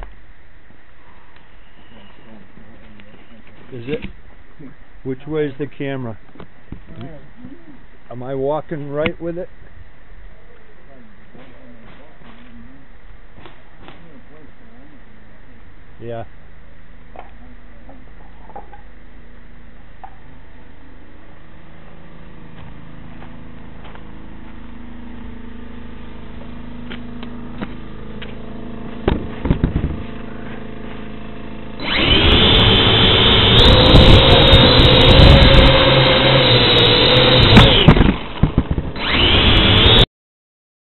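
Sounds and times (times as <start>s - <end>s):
quadcopter motors whining: 22.3s - 40.1s
knocks on asphalt: 27.6s - 30.2s, 37.9s - 38.9s.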